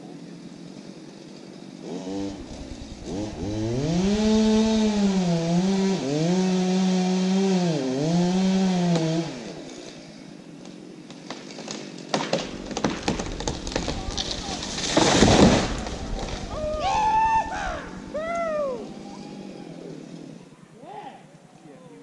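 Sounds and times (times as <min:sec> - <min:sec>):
chainsaw revving while cutting: 0:01.8 - 0:10.0.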